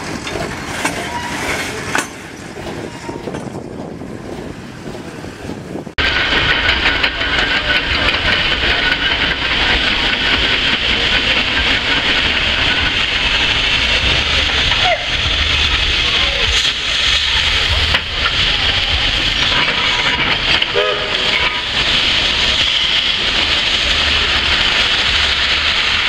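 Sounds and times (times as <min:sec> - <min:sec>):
steam shovel hissing and rumbling: 0:00.0 - 0:26.0
machinery clatter: 0:06.0 - 0:26.0.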